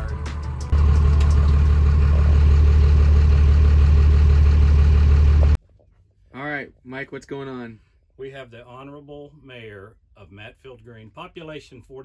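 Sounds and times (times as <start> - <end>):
vehicle engine idling: 0.0 - 5.6.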